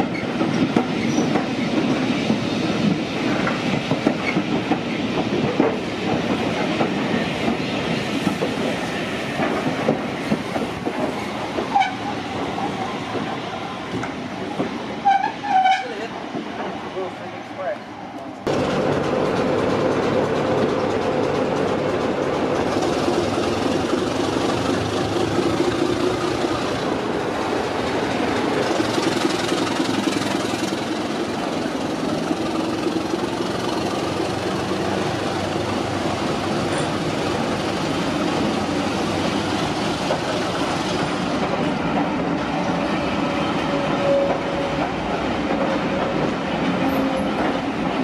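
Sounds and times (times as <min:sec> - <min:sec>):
diesel locomotive engine drone: 0:16.2 - 0:48.0.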